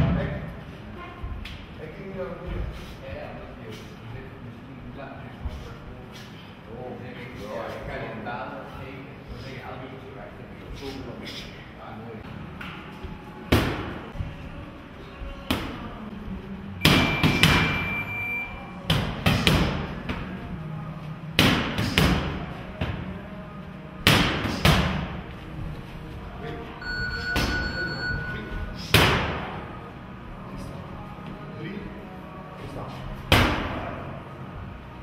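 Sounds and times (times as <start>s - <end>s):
punches smacking punch mitts: 18.9s - 20.3s, 21.4s - 23.0s, 24.0s - 25.2s.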